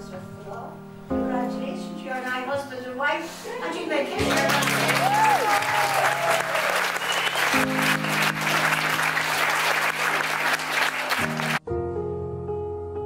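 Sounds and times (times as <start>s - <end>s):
soft background music: 0.0s - 5.3s
guests applauding: 4.0s - 11.6s
music chords: 4.1s - 6.0s, 6.8s - 12.8s.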